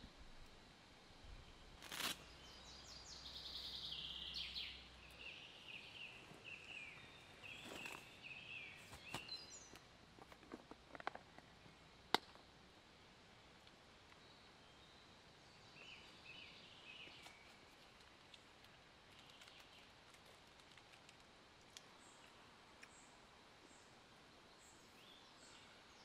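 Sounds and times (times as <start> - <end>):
birds singing: 2.2 - 9.8, 14.1 - 18.5, 19.1 - 20.0, 21.8 - 26.0
small clicks: 17.2 - 23.0.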